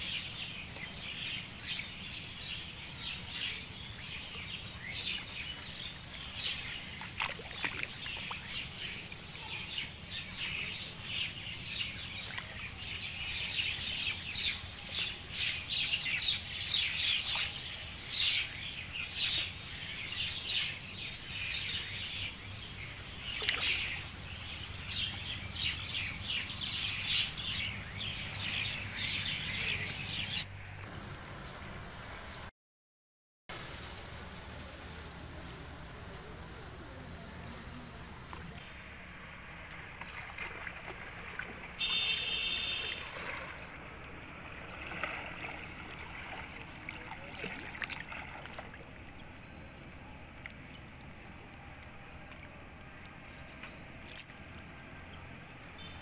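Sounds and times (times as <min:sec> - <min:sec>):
small birds chirping: 0:00.0 - 0:30.4, 0:41.8 - 0:43.8, 0:44.8 - 0:56.0.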